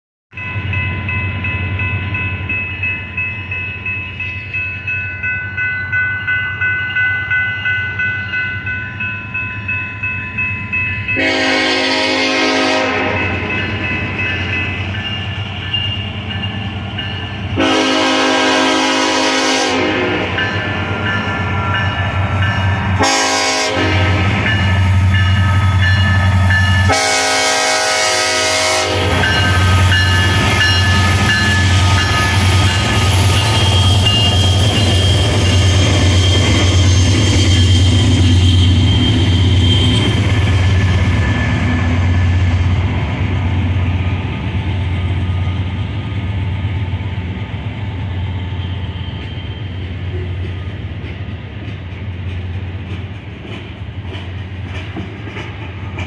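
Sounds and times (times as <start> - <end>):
crossing warning bells: 0.3 - 56.0
diesel locomotive rumble: 11.1 - 56.0
train air horn blasts: 11.2 - 13.5, 17.6 - 20.4, 23.0 - 24.6, 26.8 - 32.0.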